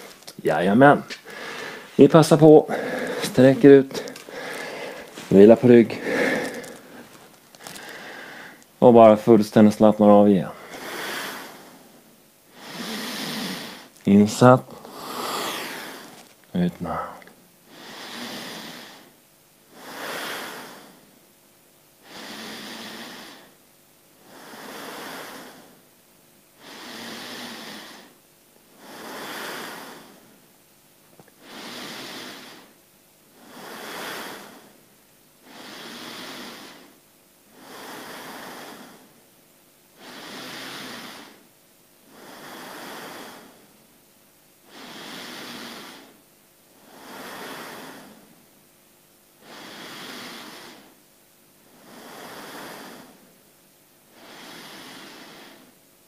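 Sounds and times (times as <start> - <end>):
person breathing slowly: 1.1 - 8.6, 10.6 - 14.0, 14.7 - 16.3, 17.0 - 21.1, 22.0 - 23.6, 24.2 - 25.8, 26.6 - 30.4, 31.4 - 32.8, 33.4 - 34.8, 35.4 - 39.2, 40.0 - 41.5, 42.1 - 43.7, 44.7 - 46.2, 46.8 - 48.4, 49.4 - 51.0, 51.7 - 53.4, 54.1 - 55.8.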